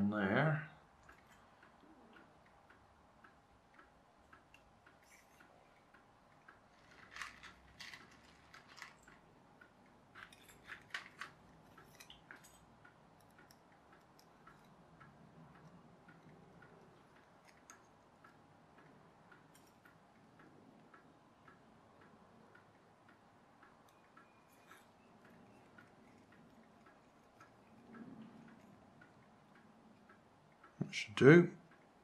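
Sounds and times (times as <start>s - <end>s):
faint regular ticking: 0.0s - 32.0s
small metal parts clicking: 3.7s - 14.8s, 15.5s - 17.9s, 19.5s - 20.0s, 23.8s - 29.3s.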